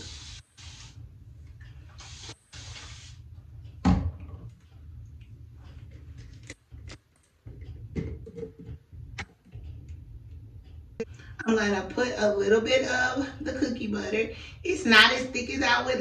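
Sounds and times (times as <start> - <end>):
spray bottle spritzing: 0.0 - 1.0, 1.9 - 3.2.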